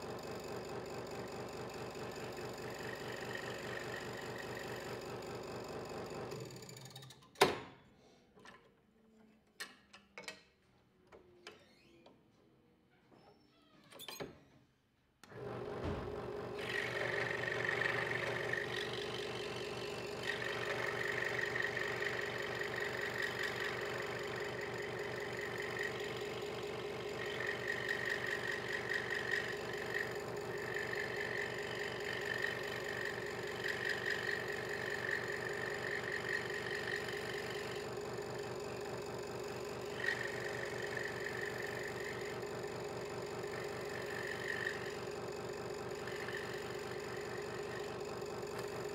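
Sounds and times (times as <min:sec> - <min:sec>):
scroll saw running: 0:01.2 - 0:05.0, 0:15.3 - 0:48.9
saw blade rasping through wood: 0:46.0 - 0:47.9.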